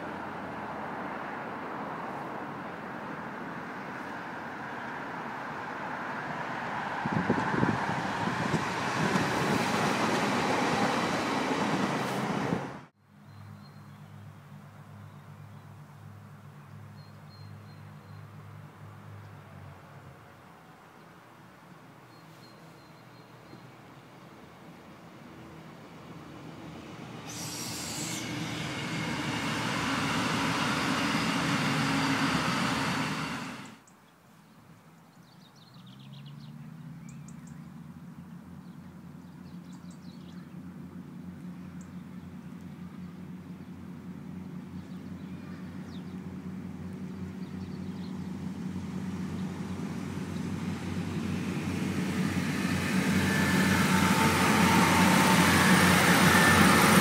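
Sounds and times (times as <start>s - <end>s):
train engine drone: 0.0s - 13.2s, 25.2s - 33.8s, 40.3s - 57.0s
diesel train passing: 0.0s - 21.4s, 23.0s - 33.9s, 37.8s - 57.0s.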